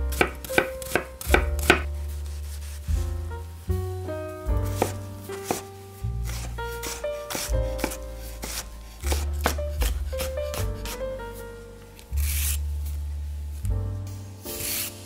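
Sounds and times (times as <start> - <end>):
background music: 0.0 - 15.0
knife chopping on cutting board: 0.1 - 1.9, 4.7 - 11.0.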